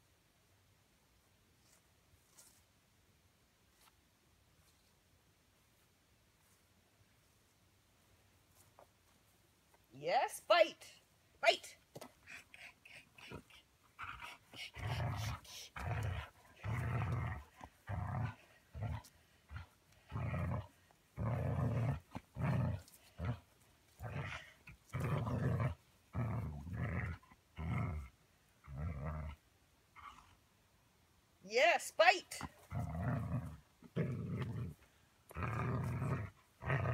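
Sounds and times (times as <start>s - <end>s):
dog play growling: 12.0s - 30.4s, 32.4s - 36.9s.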